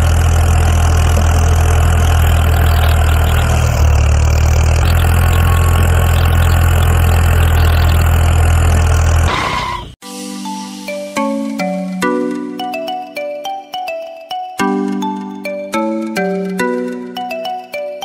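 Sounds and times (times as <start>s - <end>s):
tractor engine humming: 0.0s - 9.3s
marimba-like mallet melody: 10.3s - 18.0s.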